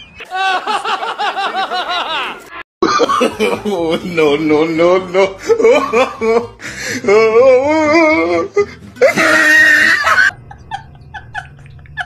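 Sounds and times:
comedic laughter: 0.2 - 4.1, 5.1 - 7.4, 8.6 - 12.0.

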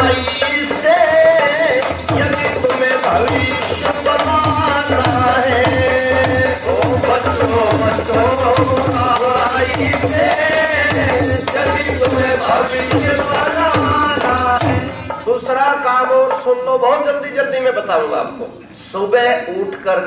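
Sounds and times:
dholak drum: 0.0 - 17.2
jingling rattle: 0.6 - 15.0.

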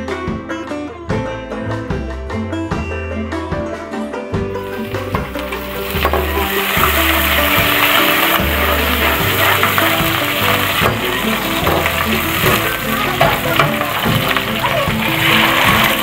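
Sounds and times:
background music with low notes: 0.0 - 16.0
vegetables sizzling in hot oil: 4.6 - 16.0
metal spoon scraping pan: 4.9 - 16.0.

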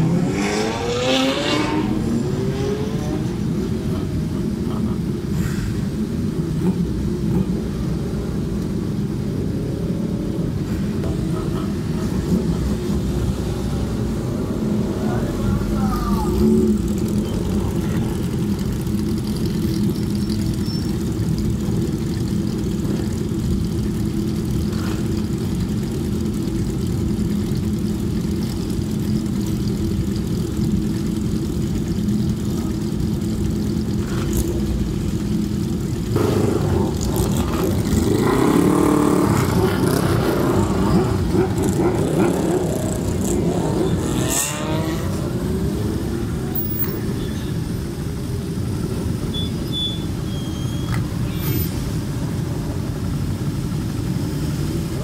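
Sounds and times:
motorcycles revving past: 0.0 - 4.4, 11.0 - 21.1, 36.0 - 47.2
motorcycle engines idling: 1.0 - 55.0.

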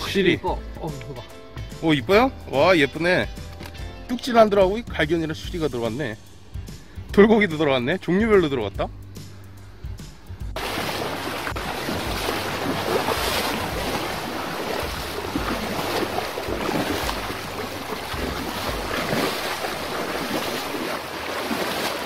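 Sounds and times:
stream rushing over rocks: 10.6 - 22.0.

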